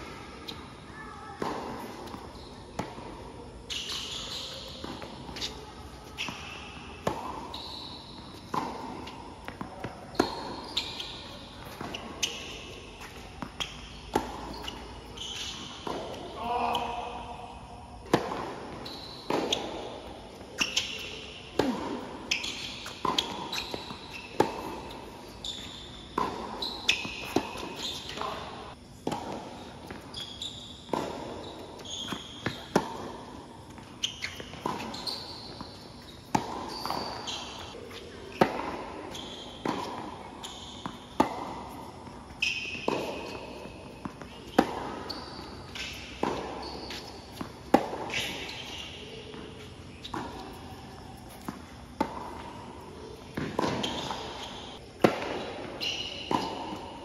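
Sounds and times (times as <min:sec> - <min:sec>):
shoe squeaks on court: 0:00.0 - 0:57.0
tennis ball bouncing: 0:00.0 - 0:57.0
tennis racket strikes: 0:53.4 - 0:56.8.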